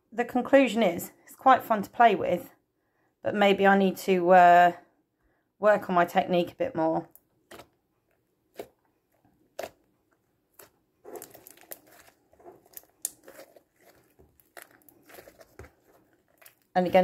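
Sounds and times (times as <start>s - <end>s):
slime clicking and popping: 10.5s - 16.7s.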